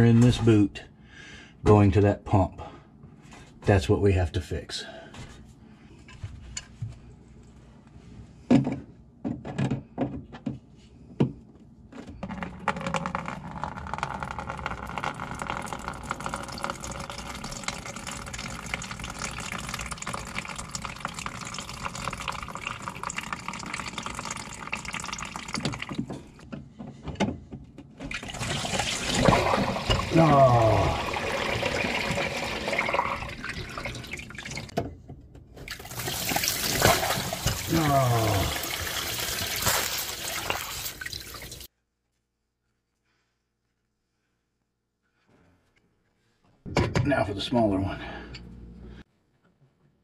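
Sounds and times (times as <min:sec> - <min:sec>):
water running into plastic container: 0:12.3 - 0:26.3, 0:28.1 - 0:34.7, 0:35.6 - 0:41.7.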